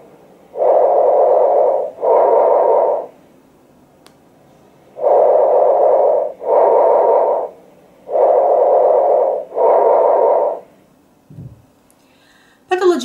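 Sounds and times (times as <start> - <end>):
harsh breath sounds: 5.0 - 7.5, 8.1 - 10.8.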